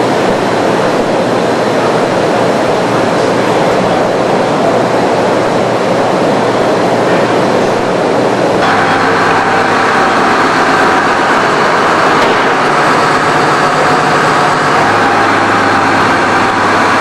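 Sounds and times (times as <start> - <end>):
machinery rushing drone: 0.0 - 17.0
low hum: 7.9 - 17.0.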